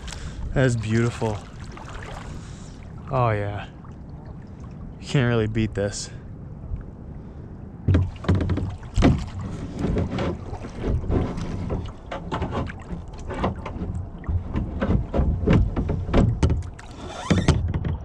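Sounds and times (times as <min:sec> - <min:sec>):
wind rumbling on microphone: 0:00.0 - 0:18.0
paddle knocking plastic hull: 0:07.8 - 0:18.0.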